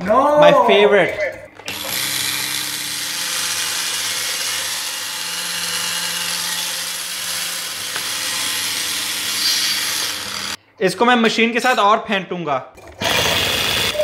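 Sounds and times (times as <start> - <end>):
electric mixer whirring: 1.6 - 10.6, 13.0 - 14.0.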